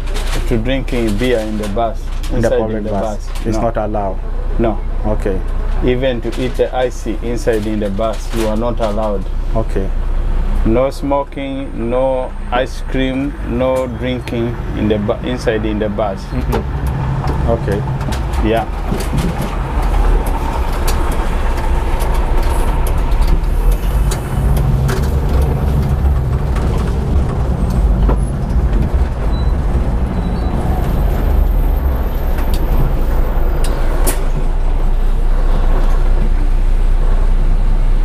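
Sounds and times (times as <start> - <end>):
bus engine and road rumble: 0.0 - 38.0
sharp clicks and knocks: 16.4 - 34.6.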